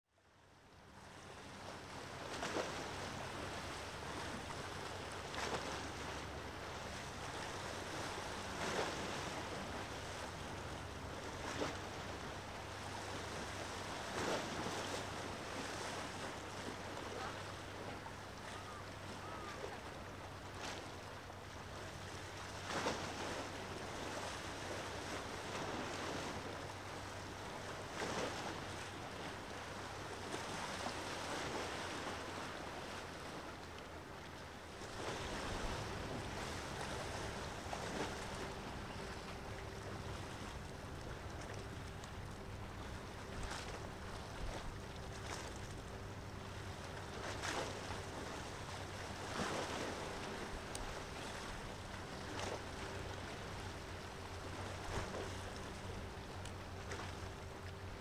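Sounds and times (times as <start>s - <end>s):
small waves washing ashore: 0.2s - 58.0s
faint low hum: 15.2s - 22.8s.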